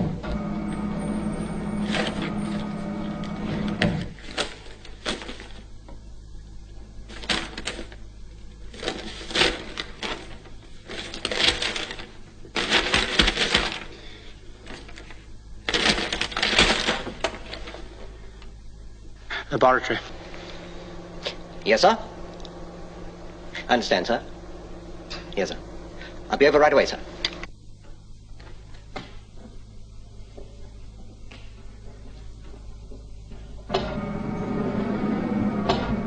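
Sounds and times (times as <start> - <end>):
paper rustling: 1.8 - 5.7, 7.0 - 8.1, 8.7 - 18.5.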